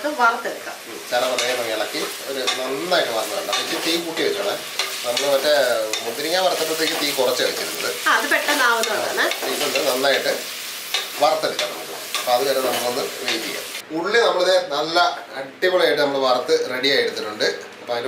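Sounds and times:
onions sizzling in oil: 0.0s - 13.8s.

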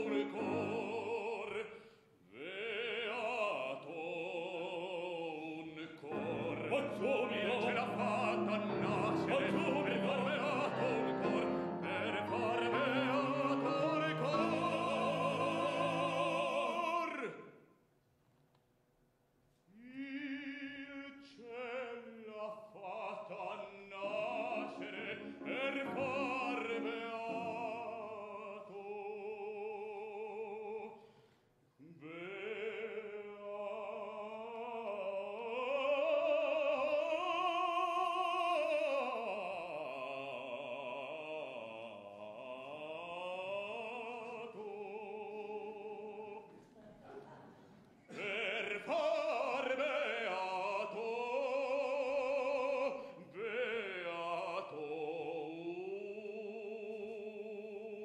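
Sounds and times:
operatic baritone singing: 0.0s - 17.6s, 19.7s - 31.0s, 31.8s - 46.5s, 48.0s - 58.0s
piano accompaniment: 6.1s - 16.8s, 24.1s - 28.4s.

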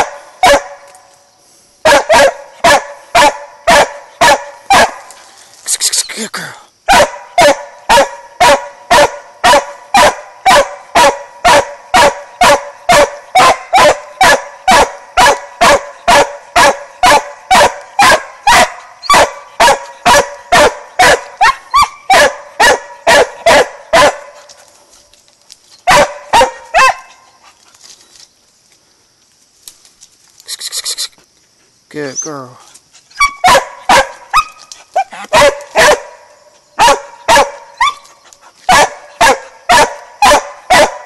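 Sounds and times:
dog barking: 0.0s - 0.8s, 1.8s - 5.1s, 6.9s - 24.5s, 25.8s - 27.3s, 33.2s - 38.1s, 38.7s - 41.0s.

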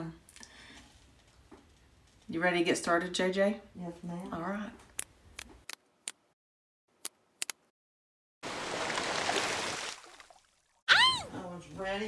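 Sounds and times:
water splashing: 8.4s - 10.8s.

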